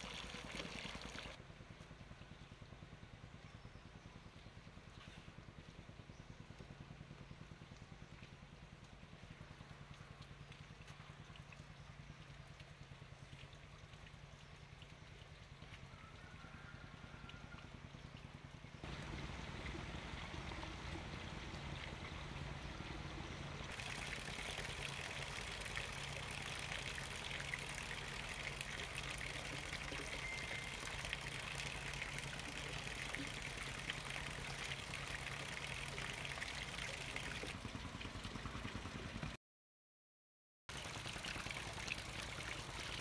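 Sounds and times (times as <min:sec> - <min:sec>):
running water hiss: 0:00.0 - 0:01.4, 0:18.8 - 0:37.3.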